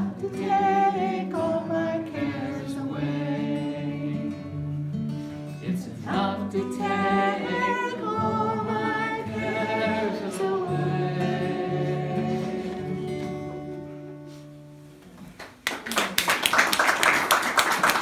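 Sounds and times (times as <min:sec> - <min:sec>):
man and woman singing: 0:00.0 - 0:04.6, 0:05.6 - 0:13.9
acoustic guitar: 0:00.0 - 0:15.6
audience clapping: 0:15.2 - 0:18.0.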